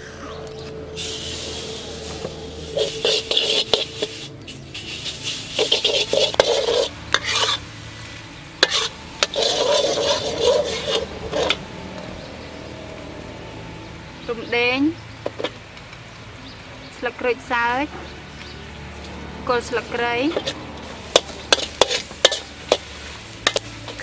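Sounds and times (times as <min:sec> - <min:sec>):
metal ladle scraping a wok: 0:00.9 - 0:12.5, 0:19.9 - 0:24.0.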